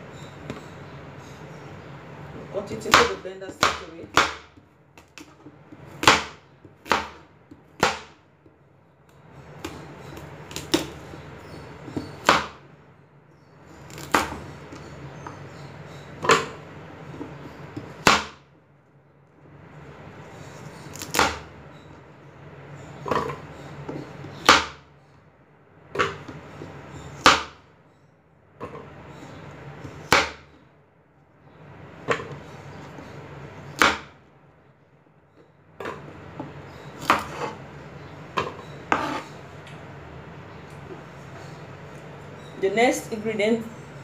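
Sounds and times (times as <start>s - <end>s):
knife slicing carrot on board: 36.8s - 37.6s, 38.4s - 39.4s.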